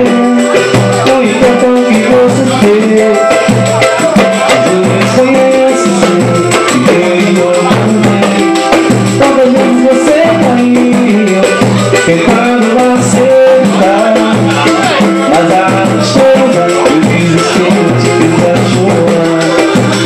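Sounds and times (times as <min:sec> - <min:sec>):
cavaquinho strumming chords: 0:00.0 - 0:20.0
quick percussion beat: 0:00.0 - 0:20.0.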